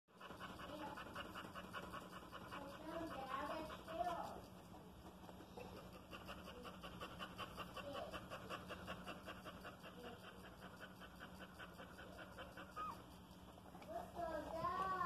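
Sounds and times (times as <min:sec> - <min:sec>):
dog panting quickly: 0:00.1 - 0:15.0
puppy squeaking: 0:12.6 - 0:13.1.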